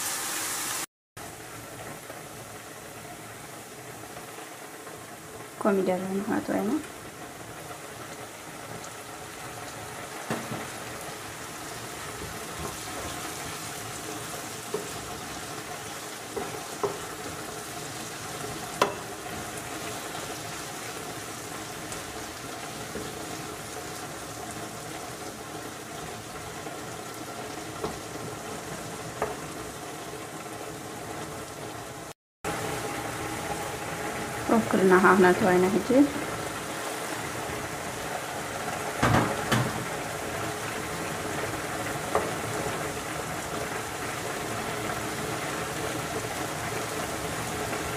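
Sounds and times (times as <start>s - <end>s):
vegetables sizzling in a frying pan: 0.0s - 47.9s
wooden spatula tapping and scraping: 16.3s - 17.1s.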